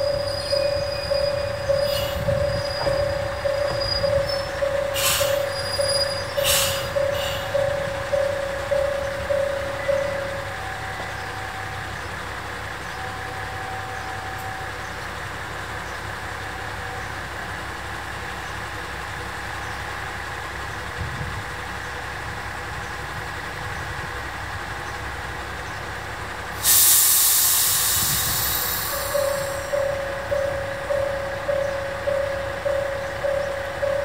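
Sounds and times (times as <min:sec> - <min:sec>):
diesel railcar engine idling: 0:00.0 - 0:34.0
compressed air hiss: 0:05.0 - 0:05.4, 0:06.4 - 0:07.5, 0:26.6 - 0:29.7.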